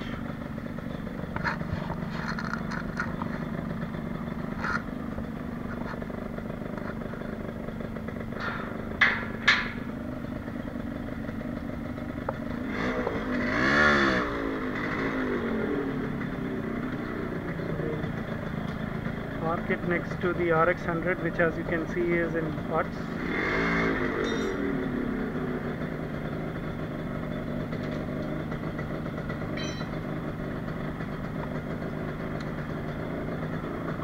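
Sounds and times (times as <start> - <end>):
motorcycle engine running: 0.0 - 34.0
sharp clicks and knocks: 1.2 - 3.5, 8.3 - 9.9, 12.2 - 13.2
engine throttle blip: 29.5 - 30.1.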